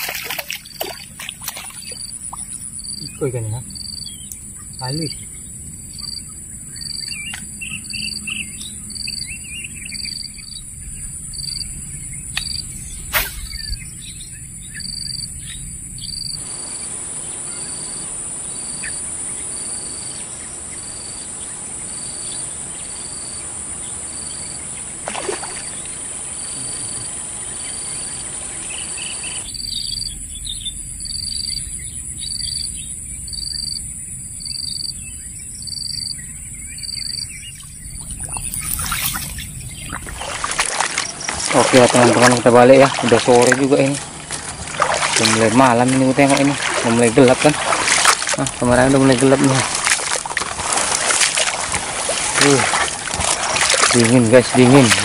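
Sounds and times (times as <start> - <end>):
bird chirps: 0.0 - 17.9, 25.6 - 44.0
high-pitched insect drone: 0.0 - 20.2, 28.8 - 44.2
sharp click: 13.1 - 13.5.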